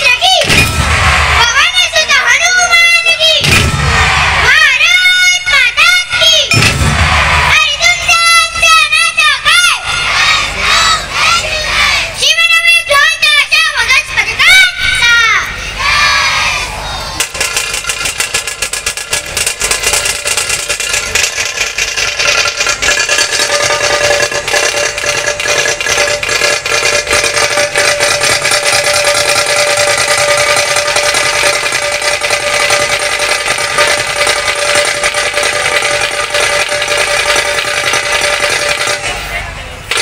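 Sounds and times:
fast drum rolls: 0.0 - 10.8, 17.2 - 40.0
barrel drums beating: 0.4 - 1.8, 3.4 - 4.6, 6.5 - 7.6, 17.2 - 39.2.

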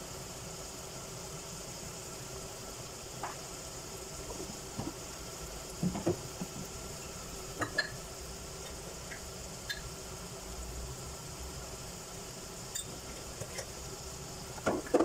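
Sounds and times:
food sizzling in oil: 0.0 - 15.0
short pops and knocks: 5.8 - 6.7.

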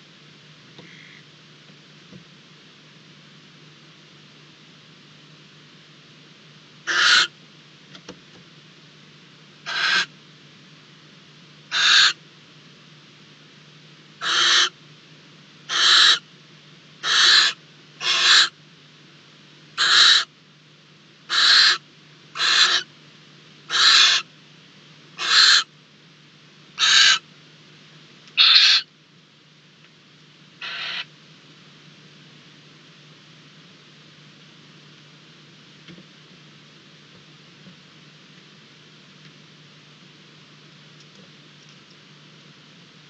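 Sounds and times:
barn owl screeching: 0.9 - 1.2, 6.9 - 7.3, 9.7 - 10.1, 11.7 - 12.2, 14.2 - 14.8, 15.7 - 16.2, 17.0 - 18.6, 19.8 - 20.3, 21.3 - 21.8, 22.4 - 22.9, 23.7 - 24.3, 25.2 - 25.7, 26.8 - 27.2, 28.4 - 28.9, 30.6 - 31.1.

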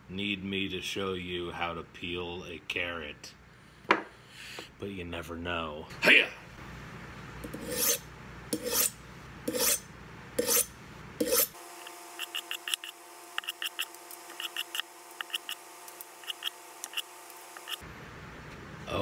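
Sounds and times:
knife scraping on honing rod: 7.5 - 11.6, 12.2 - 15.6, 16.2 - 17.8.

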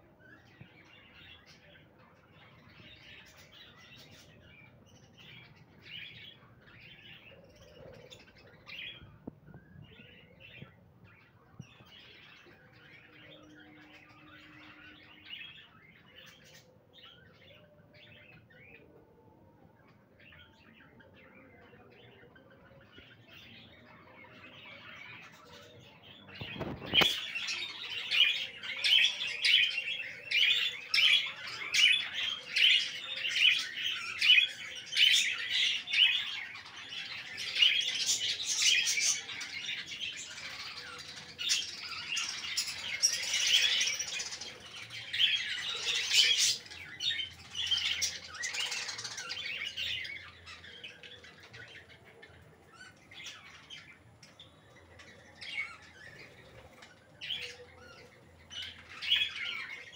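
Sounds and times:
budgerigars chirping and chattering: 20.2 - 59.9.

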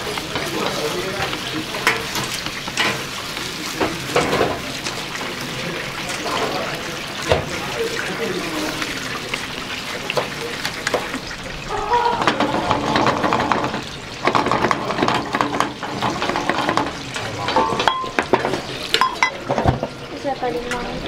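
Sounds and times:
chopsticks clicking and scraping pan: 0.0 - 5.0
eggs sizzling in a frying pan: 0.0 - 21.0.

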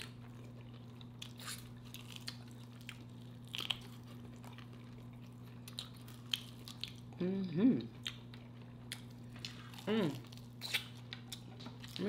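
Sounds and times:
crunchy chewing: 0.0 - 7.2.

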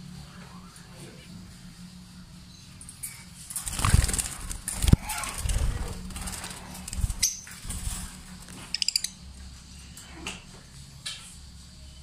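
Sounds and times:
birds chirping: 3.9 - 7.8, 8.5 - 9.3.

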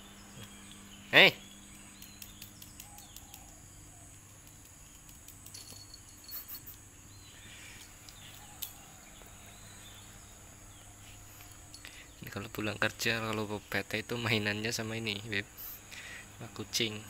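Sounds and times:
bird chirps: 0.0 - 5.0, 5.6 - 12.3.

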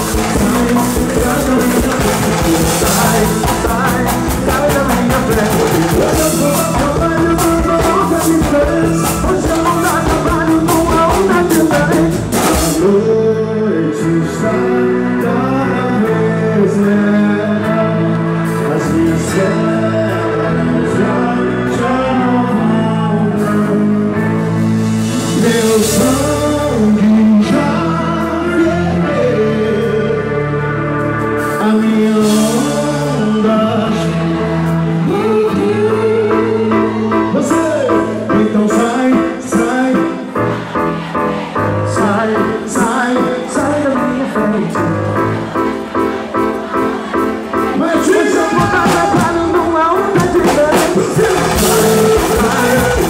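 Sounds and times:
hand drums playing fast groove: 0.0 - 12.9, 48.1 - 53.0
person singing: 0.0 - 53.0.

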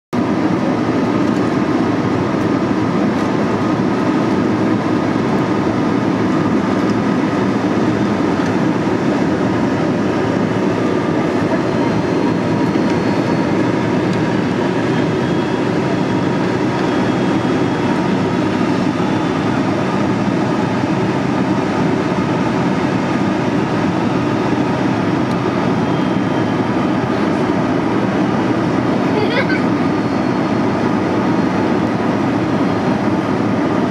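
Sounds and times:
jet engines and airflow rushing: 0.1 - 33.9.

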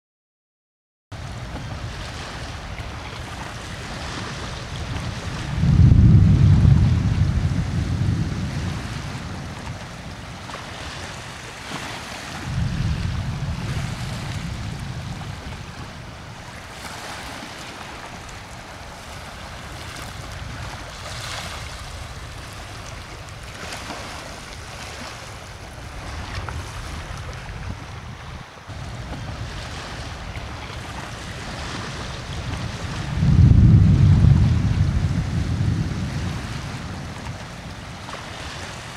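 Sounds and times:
small waves breaking: 1.2 - 38.9
wind buffeting microphone: 1.2 - 38.9
deep rumbles: 5.4 - 9.2, 12.5 - 16.2, 33.1 - 37.3.

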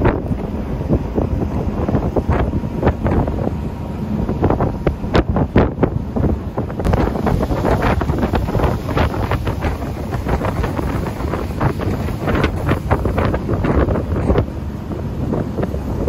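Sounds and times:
boat rushing across water: 0.0 - 16.0
wind buffeting microphone: 0.0 - 16.0.

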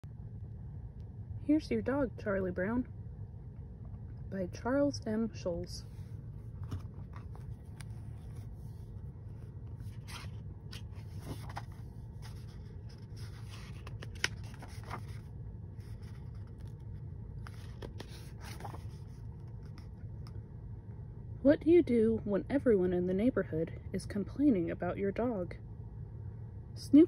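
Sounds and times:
low hum: 0.0 - 27.0
book pages turning: 5.9 - 20.4.

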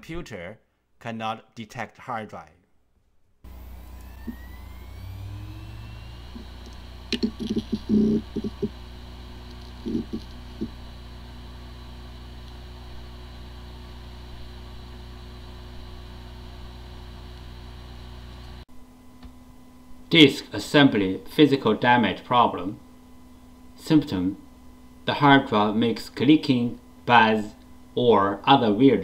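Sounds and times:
hard disk clicking: 3.5 - 11.0
hard disk spindle motor whine: 3.5 - 19.0.

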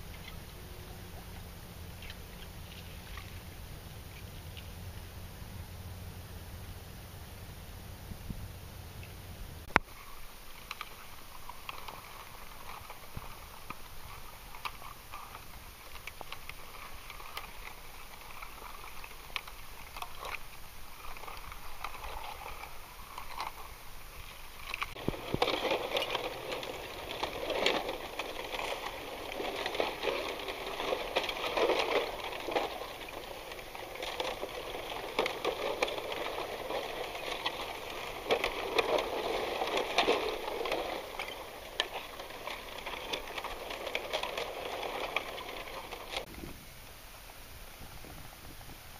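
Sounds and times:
crackling underwater water noise: 0.0 - 6.1, 9.0 - 48.9.

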